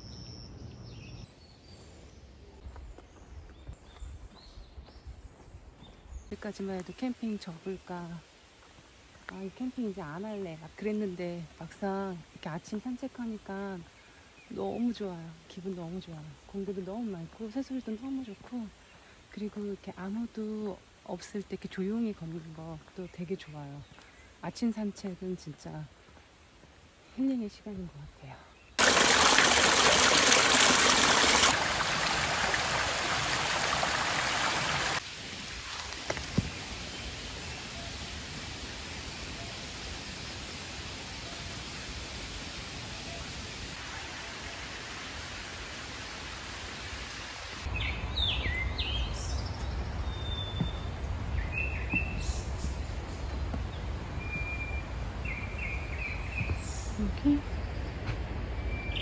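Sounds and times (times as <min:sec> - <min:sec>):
forest hush: 0:00.0 - 0:59.0
spring water splashing over rocks: 0:28.8 - 0:47.7.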